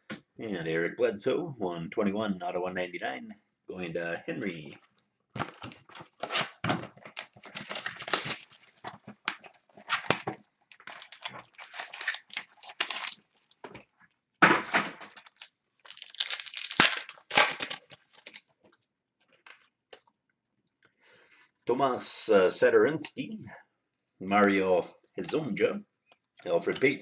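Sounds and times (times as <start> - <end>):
card pack wrapper crinkling and tearing: 5.4 - 13.6, 15.1 - 18.5.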